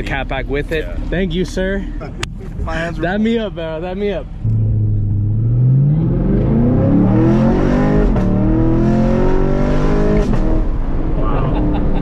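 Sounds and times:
car engine accelerating: 0:02.6 - 0:12.0.

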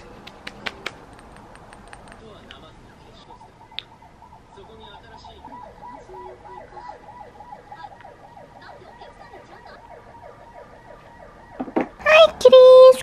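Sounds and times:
electronic siren warbling: 0:03.3 - 0:12.0.

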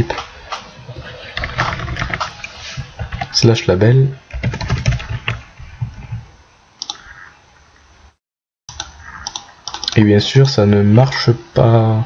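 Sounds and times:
computer keyboard keystrokes: 0:04.3 - 0:05.4, 0:08.7 - 0:10.0
mouse clicks: 0:06.8 - 0:07.0, 0:08.7 - 0:10.0.

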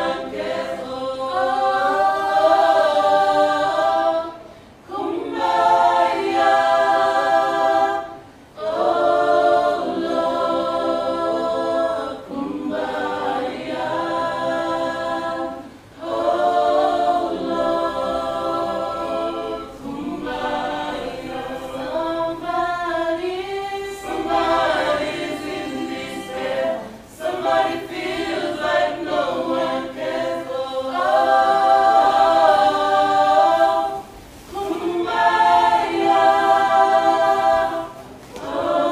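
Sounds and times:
a cappella choir singing: 0:00.0 - 0:38.9.

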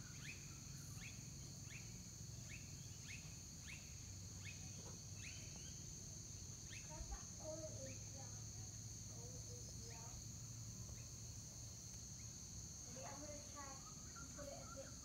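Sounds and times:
crickets trilling: 0:00.0 - 0:15.0.

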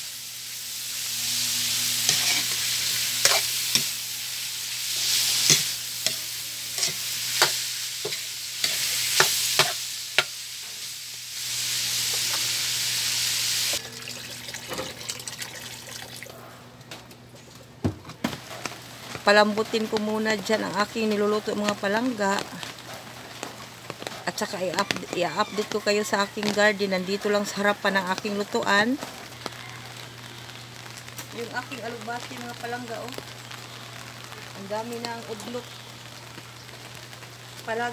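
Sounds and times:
meat sizzling in a wok: 0:00.0 - 0:14.9, 0:18.3 - 0:37.9
metal spatula scraping a pan: 0:02.0 - 0:03.9.

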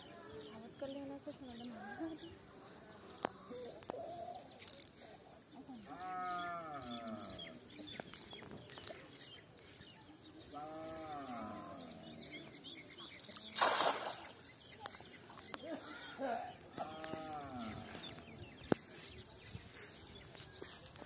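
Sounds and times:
farm animal calling: 0:05.8 - 0:07.6, 0:10.5 - 0:12.5, 0:15.8 - 0:18.3
net splashing into water: 0:13.4 - 0:14.4.

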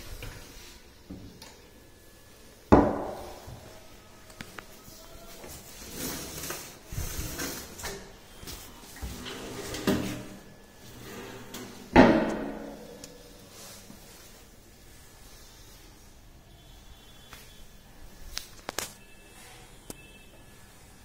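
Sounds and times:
drawers sliding open and shut: 0:05.7 - 0:08.1, 0:09.0 - 0:12.9.

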